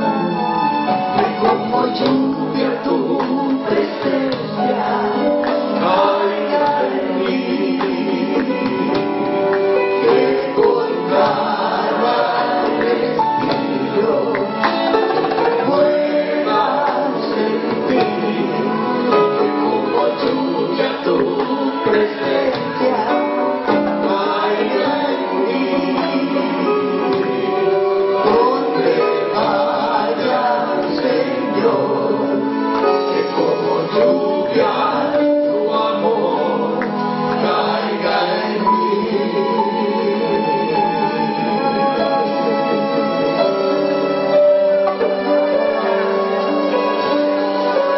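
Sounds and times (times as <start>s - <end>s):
group singing worship song: 0.0s - 45.8s
live church band: 0.0s - 47.9s
plucked string instrument: 0.0s - 47.9s
drum kit: 1.2s - 9.2s.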